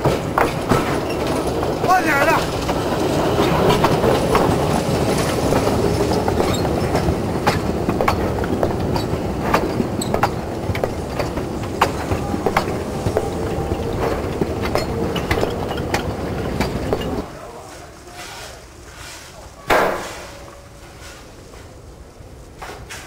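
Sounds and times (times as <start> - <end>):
wagon clicks and clanks: 0.0 - 17.3
wheels rumbling on rail: 0.0 - 23.0.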